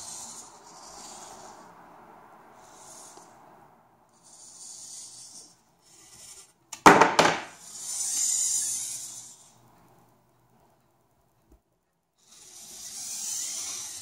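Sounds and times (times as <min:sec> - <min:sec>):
servo motors whirring: 0:00.0 - 0:01.6, 0:02.6 - 0:03.3, 0:04.2 - 0:06.5, 0:07.6 - 0:09.6, 0:12.2 - 0:14.0.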